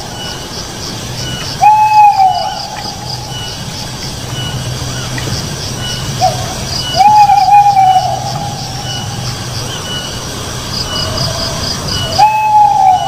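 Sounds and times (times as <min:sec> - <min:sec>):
steady low hum: 0:00.0 - 0:13.0
owl whistled call: 0:01.3 - 0:03.6, 0:06.2 - 0:09.2, 0:11.9 - 0:13.0.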